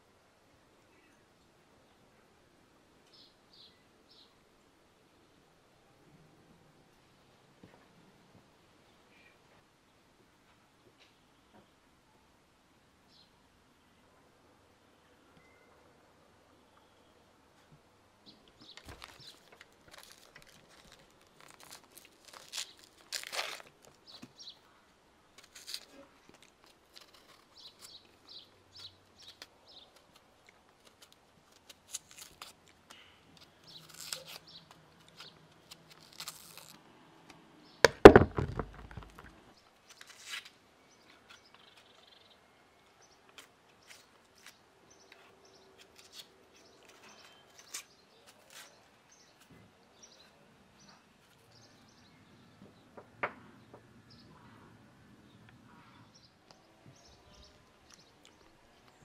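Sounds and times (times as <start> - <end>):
loud thump: 37.8 - 39.3.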